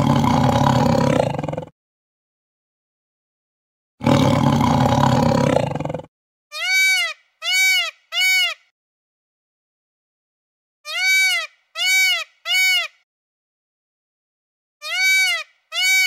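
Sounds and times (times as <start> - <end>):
big cat roaring: 0.0 - 1.7, 4.0 - 6.1
peacock calling: 6.6 - 8.7, 10.9 - 13.0, 14.8 - 16.0.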